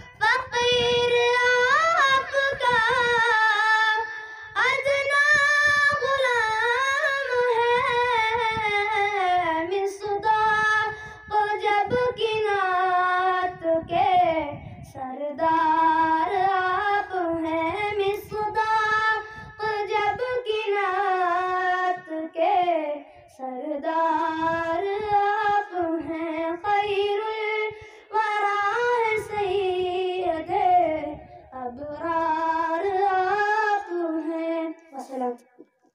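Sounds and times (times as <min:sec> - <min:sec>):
boy singing devotional song: 0:00.0 - 0:35.7.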